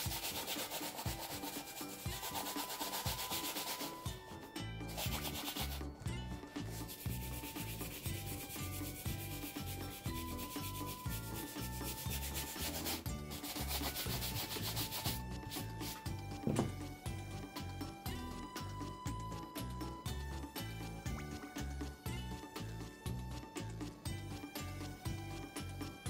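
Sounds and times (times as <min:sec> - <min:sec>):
shoe brush rubbing leather: 0:00.0 - 0:04.0, 0:04.9 - 0:05.8, 0:06.7 - 0:16.0
quiet background music: 0:00.0 - 0:26.0.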